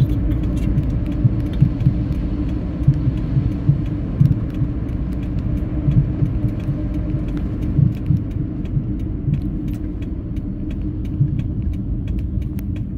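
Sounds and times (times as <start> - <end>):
car road and engine rumble: 0.0 - 12.9
faint sharp ticks: 0.0 - 12.9.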